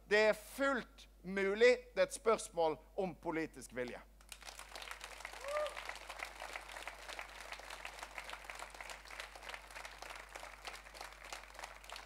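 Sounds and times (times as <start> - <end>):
audience applauding: 4.3 - 12.0
voice whooping: 5.4 - 5.8.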